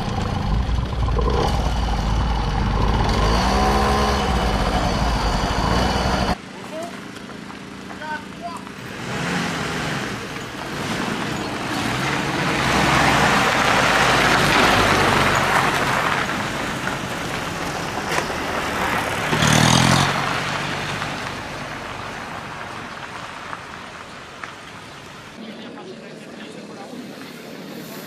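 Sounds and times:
loud engine burst: 0.0 - 6.4
vehicles passing: 0.0 - 28.0.

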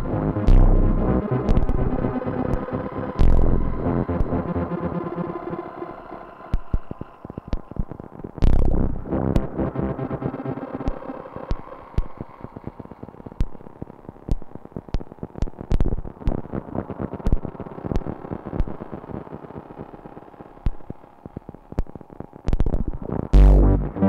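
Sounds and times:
low bass pulse: 0.0 - 5.2, 8.4 - 12.2, 23.3 - 24.0
sharp electronic clicks and crackles: 0.4 - 4.7, 6.3 - 9.9, 10.5 - 24.0.

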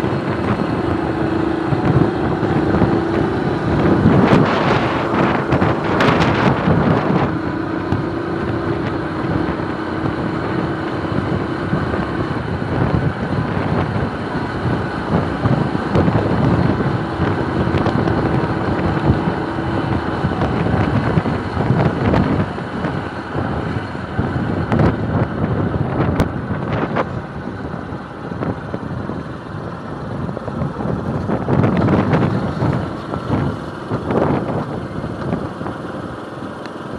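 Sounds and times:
motorcycle engine running: 0.0 - 36.9
wind rushing over microphone: 0.0 - 36.9.

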